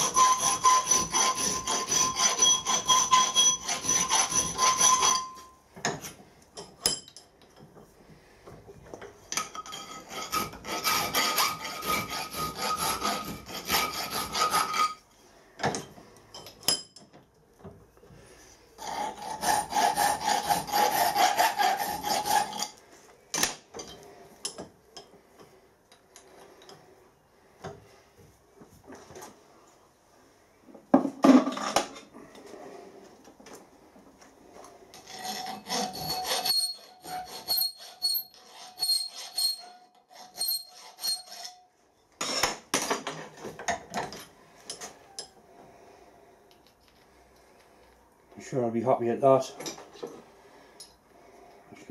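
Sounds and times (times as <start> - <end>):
file rasping on metal plate: 0.0 - 6.2, 9.4 - 15.1, 18.8 - 22.8, 34.9 - 42.4.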